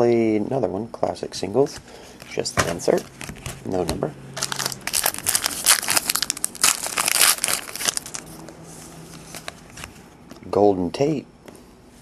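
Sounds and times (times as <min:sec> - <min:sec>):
foil wrapper crinkling: 0:04.4 - 0:09.9.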